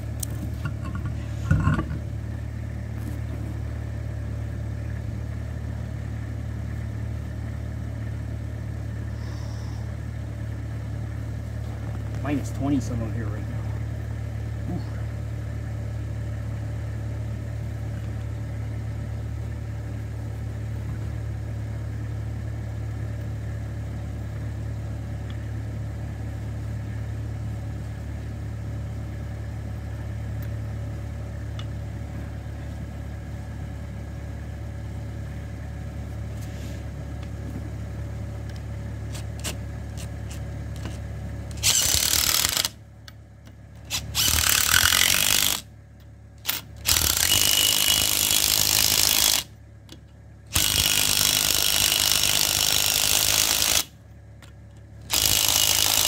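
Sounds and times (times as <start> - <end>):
small car engine idling: 0.0 - 56.0
impact wrench spinning: 39.1 - 42.8, 43.9 - 45.6, 46.4 - 49.5, 50.5 - 53.9, 55.1 - 56.0.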